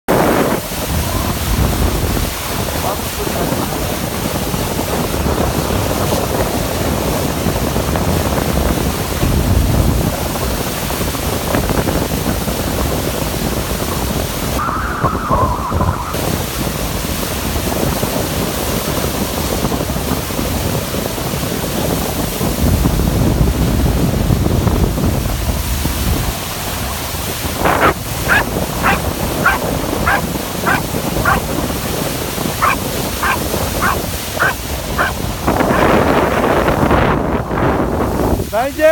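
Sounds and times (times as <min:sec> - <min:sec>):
rushing water: 0:00.1 - 0:14.8, 0:25.4 - 0:38.9
wind buffeting the microphone: 0:00.1 - 0:38.9
dog yelping: 0:28.3 - 0:31.5, 0:32.6 - 0:35.9.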